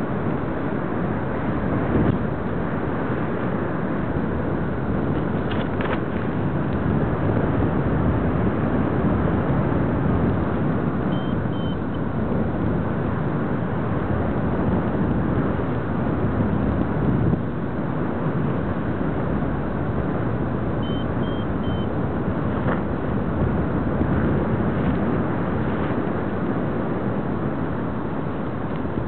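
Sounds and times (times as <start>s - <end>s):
wind rushing over microphone: 0.0s - 29.0s.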